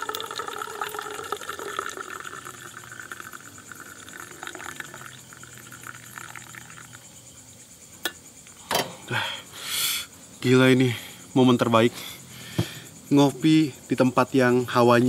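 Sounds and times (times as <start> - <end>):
coffee pouring into a mug: 0.0 - 7.0.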